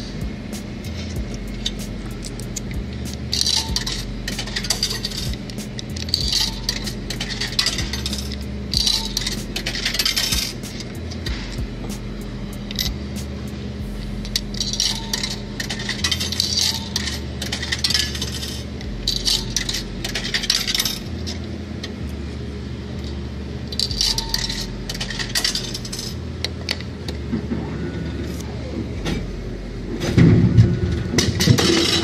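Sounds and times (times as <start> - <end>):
coins clinking in vending machine: 0.9 - 11.4, 12.6 - 13.0, 14.2 - 21.5, 23.7 - 26.8, 31.2 - 32.0.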